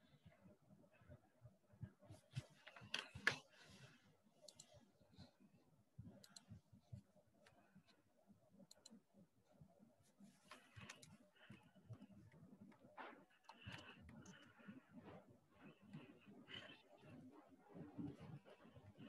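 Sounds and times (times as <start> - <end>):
faint scattered clicks: 4.4 - 4.8, 6.2 - 6.6, 8.6 - 9.0, 10.5 - 14.7.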